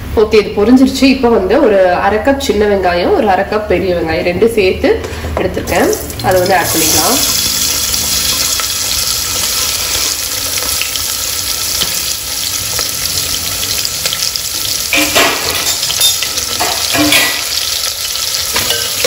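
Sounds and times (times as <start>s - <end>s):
onions sizzling in oil: 5.7s - 19.0s
spoon scraping and knocking pot: 14.9s - 17.6s.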